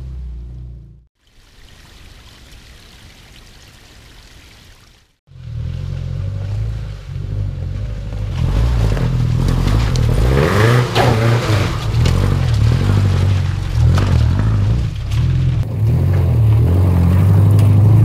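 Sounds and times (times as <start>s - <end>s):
car engine revving under load: 5.3s - 18.0s.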